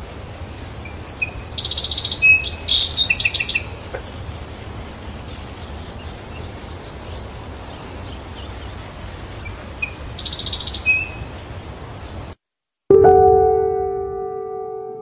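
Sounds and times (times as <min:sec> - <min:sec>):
birds chirping: 0:00.8 - 0:12.2
bird trill: 0:00.9 - 0:03.7.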